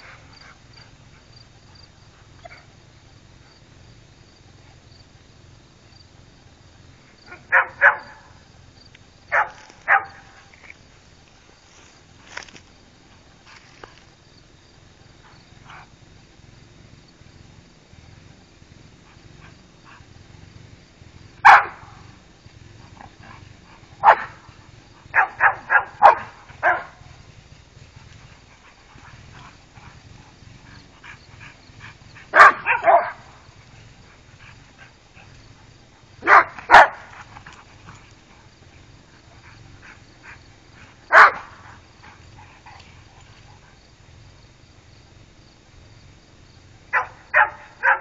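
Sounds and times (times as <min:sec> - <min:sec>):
dogs barking in play: 0:07.2 - 0:08.4, 0:09.3 - 0:10.5, 0:21.2 - 0:44.2, 0:46.7 - 0:48.0.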